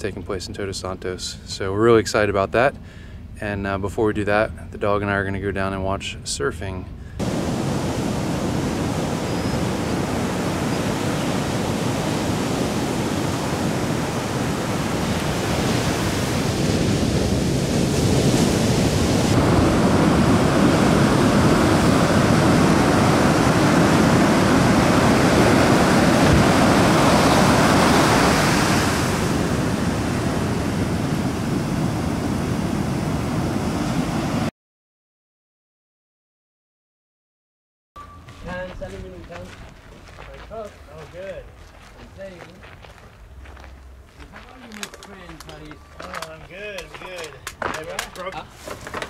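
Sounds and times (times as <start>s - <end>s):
ocean waves breaking: 7.2s - 34.5s.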